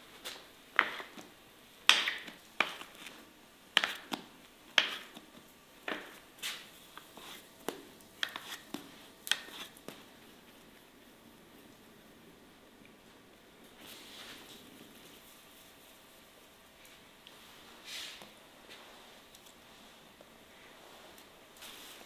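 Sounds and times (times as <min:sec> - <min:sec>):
bench scraper chopping dough: 0:01.9 - 0:03.2, 0:03.8 - 0:10.0.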